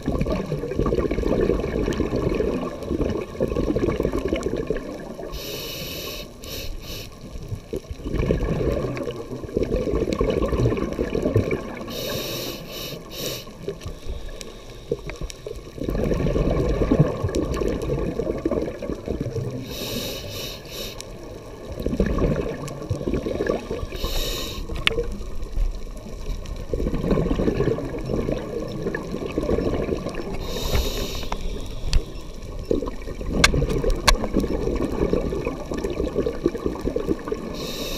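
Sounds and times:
exhaled bubbles rushing: 0.0s - 5.4s, 7.4s - 12.0s, 15.5s - 19.7s, 21.2s - 31.7s, 32.4s - 37.9s
regulator hissing inhale: 5.3s - 7.3s, 11.9s - 15.2s, 19.6s - 21.2s, 23.5s - 24.8s, 30.3s - 32.4s, 37.5s - 37.9s.

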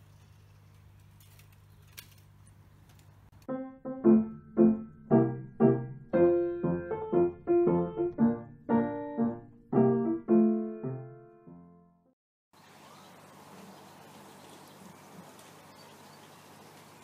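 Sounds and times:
solo piano melody: 3.4s - 12.2s.

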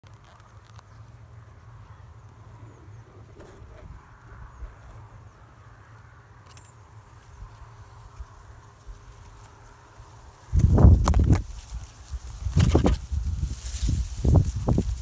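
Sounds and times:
small ticks: 0.0s - 1.2s, 5.8s - 15.0s
dry reeds rustling: 6.8s - 15.0s.

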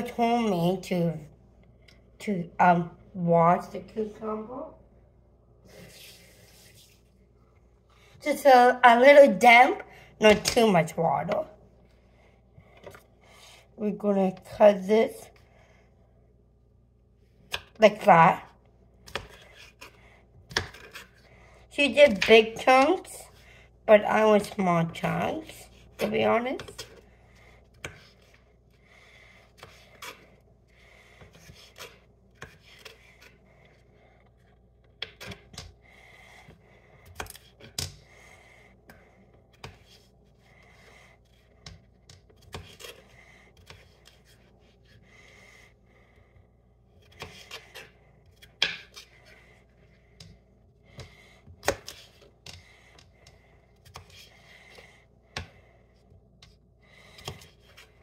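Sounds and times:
knife cutting on a cutting board: 19.1s - 21.2s, 47.0s - 49.5s.

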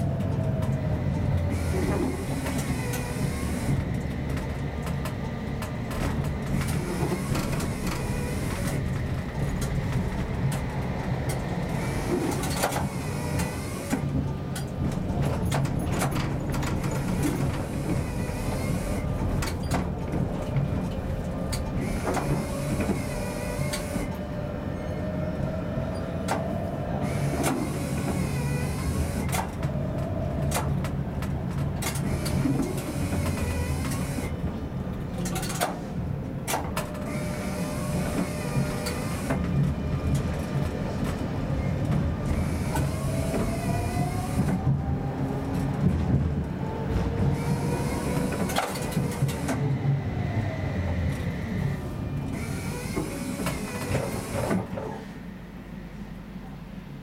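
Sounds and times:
tram wheels rumbling on rail: 0.0s - 57.0s.

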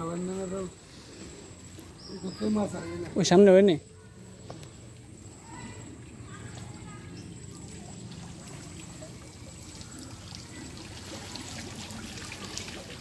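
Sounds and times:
water trickling and running: 0.0s - 13.0s
water splashes and drips: 4.5s - 13.0s.

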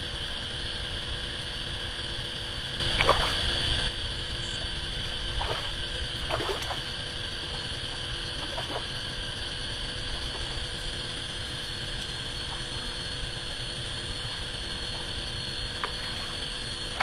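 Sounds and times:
steady high hum: 0.0s - 17.0s
fish splashing at water surface: 2.8s - 3.9s, 5.3s - 7.0s, 8.4s - 9.0s.

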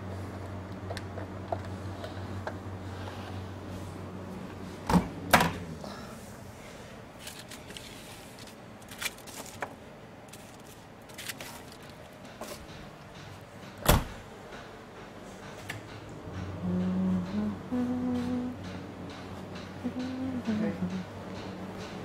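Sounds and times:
low hum: 14.9s - 21.9s.

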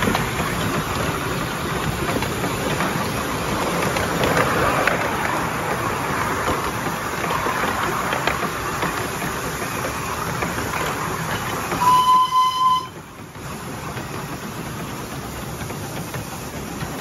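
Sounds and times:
steam locomotive running: 0.0s - 17.0s
steam whistle: 11.8s - 13.0s.

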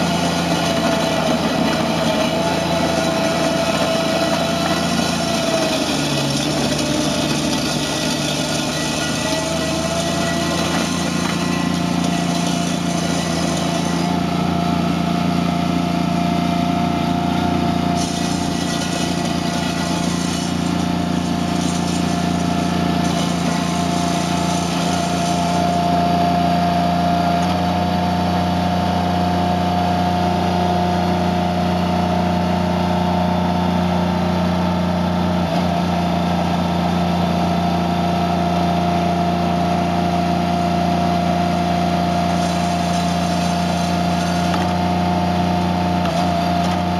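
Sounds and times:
rake churning gravel: 0.0s - 27.6s, 39.6s - 46.9s
loader engine hum and whine: 0.0s - 46.9s.

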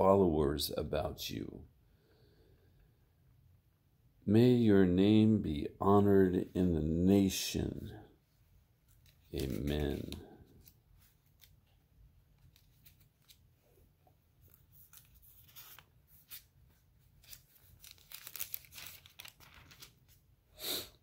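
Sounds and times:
book pages rustling: 8.8s - 20.3s.

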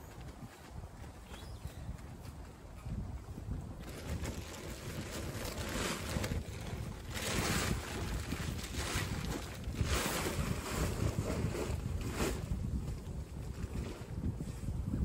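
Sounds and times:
wind rumble on microphone: 0.0s - 15.0s
tent fabric rustling: 3.8s - 12.9s.

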